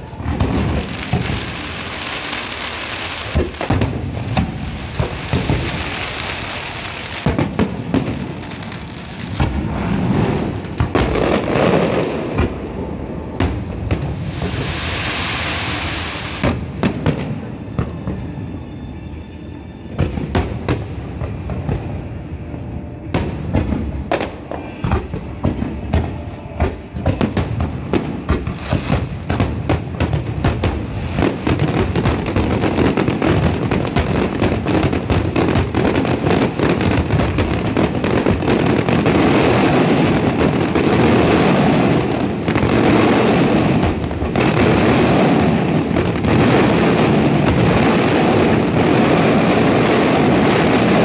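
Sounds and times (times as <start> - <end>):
fireworks crackling and hissing: 0.0 - 51.0
firework shells booming: 3.2 - 6.0.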